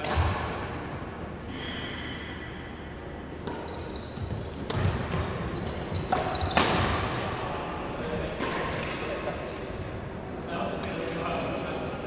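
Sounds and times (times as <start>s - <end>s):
racket hitting shuttlecock: 0.0s - 0.6s, 3.4s - 7.2s
shoes squeaking on floor: 3.6s - 4.7s, 5.5s - 6.6s.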